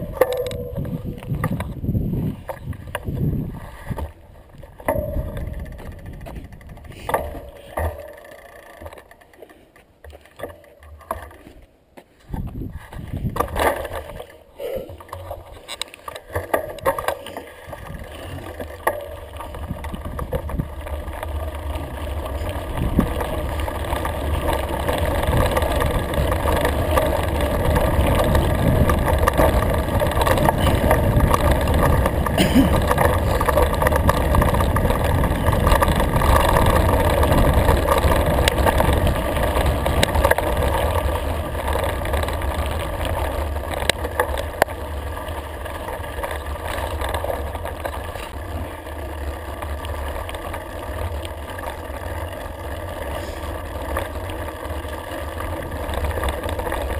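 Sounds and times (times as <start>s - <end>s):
wind rushing over microphone: 0.0s - 7.4s, 12.3s - 14.2s, 22.6s - 23.8s
bike rattling over stones: 0.0s - 56.9s
tyres rumbling: 0.0s - 56.9s.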